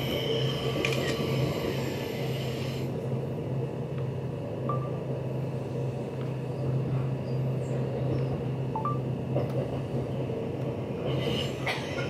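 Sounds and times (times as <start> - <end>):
train rumble inside carriage: 0.0 - 12.0.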